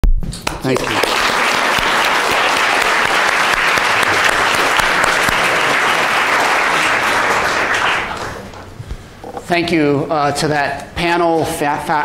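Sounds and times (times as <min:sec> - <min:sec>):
audience applauding: 0:00.5 - 0:08.7.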